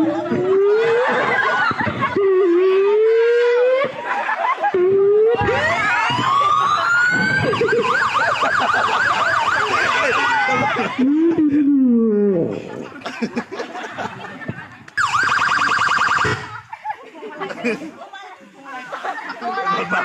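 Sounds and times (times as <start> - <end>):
siren-like wailing: 0.0 - 11.0, 15.0 - 16.5.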